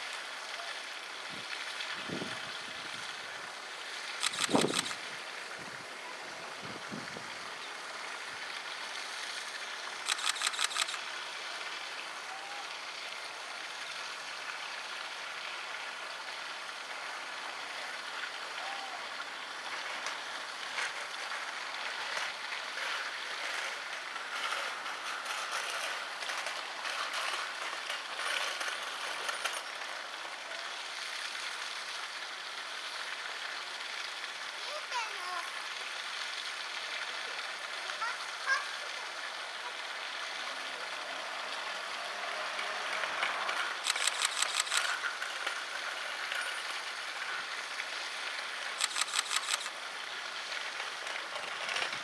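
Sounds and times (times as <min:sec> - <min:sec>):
flowing stream water: 0:00.0 - 0:52.0
sharp clicks: 0:04.2 - 0:05.0, 0:10.1 - 0:11.0, 0:43.8 - 0:45.0, 0:48.8 - 0:49.7.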